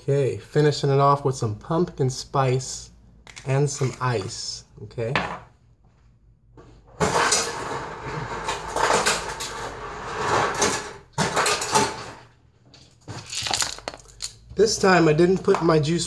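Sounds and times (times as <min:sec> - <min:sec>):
ice clattering in freezer: 0:07.0 - 0:12.2.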